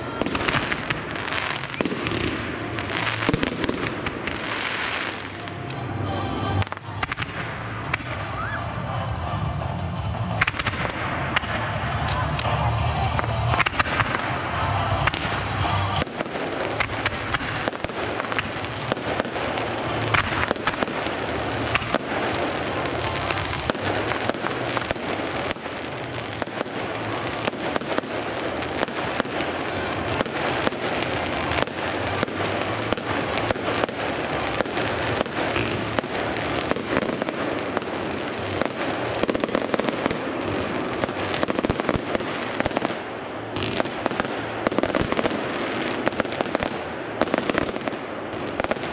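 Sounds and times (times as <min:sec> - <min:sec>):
fireworks bangs and crackling: 0:00.0 - 0:48.9.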